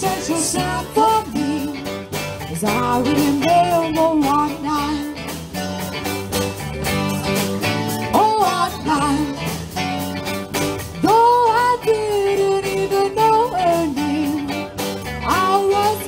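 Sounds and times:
woman singing lead: 0:00.0 - 0:05.4, 0:07.9 - 0:09.7, 0:10.9 - 0:16.0
drum kit: 0:00.0 - 0:16.0
electric guitars: 0:00.0 - 0:16.0
keyboard: 0:00.0 - 0:16.0.

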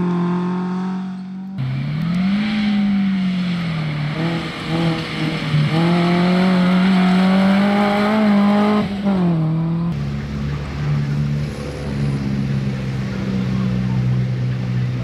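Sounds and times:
rally car engine at high revs: 0:00.0 - 0:15.0.

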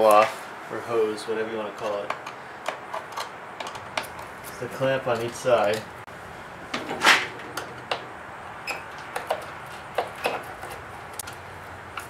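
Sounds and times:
hand tool clicks and knocks: 0:01.8 - 0:05.9, 0:06.7 - 0:08.1, 0:08.7 - 0:12.0.

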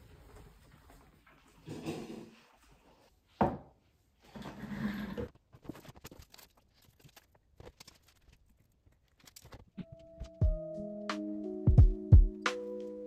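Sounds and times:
paper rustling: 0:05.5 - 0:09.8.

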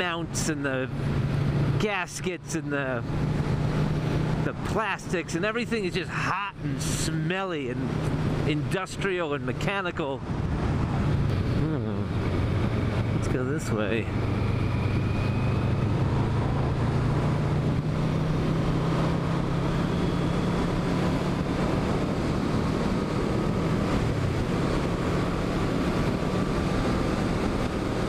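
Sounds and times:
motorcycle engine cruising: 0:02.8 - 0:05.3, 0:06.5 - 0:28.0
wind rushing over microphone: 0:10.0 - 0:28.0.

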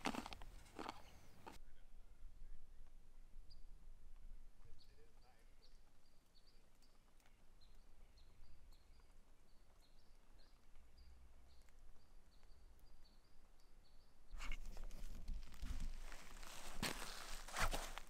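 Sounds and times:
boots crunching through brush: 0:00.0 - 0:01.6, 0:14.4 - 0:18.0
small bird chirping: 0:00.0 - 0:01.6, 0:04.6 - 0:17.8.

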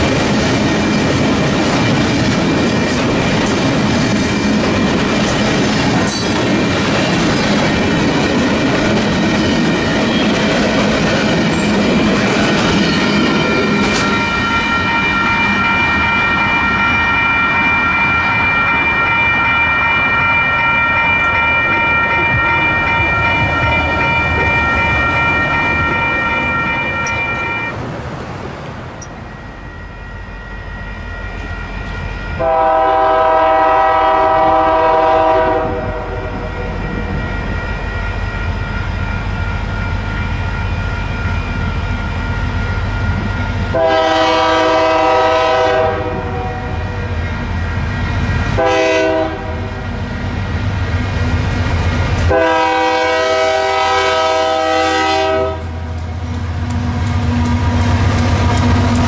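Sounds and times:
three-chime locomotive horn: 0:13.4 - 0:27.7, 0:29.3 - 0:38.6, 0:43.7 - 0:47.1, 0:48.6 - 0:49.8, 0:52.3 - 0:55.8.

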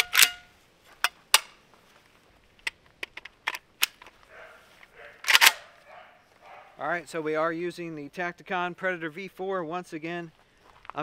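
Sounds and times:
rifle parts clicking: 0:00.0 - 0:00.4, 0:02.6 - 0:04.2, 0:04.8 - 0:05.7.

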